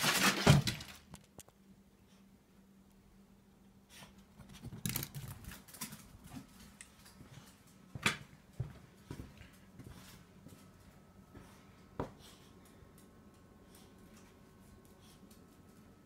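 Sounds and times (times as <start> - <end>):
faint low hum: 0.3 - 16.0
footsteps on tiled floor: 5.4 - 12.8.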